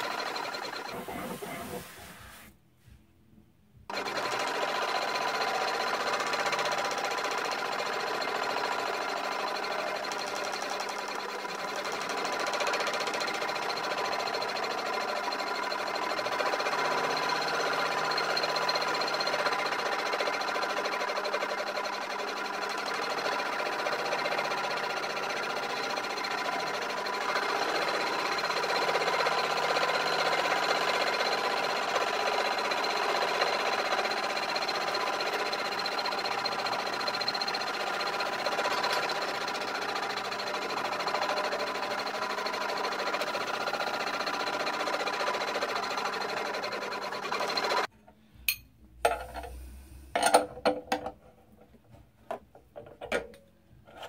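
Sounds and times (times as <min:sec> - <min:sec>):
lathe whirring with high whine: 0:00.0 - 0:02.4.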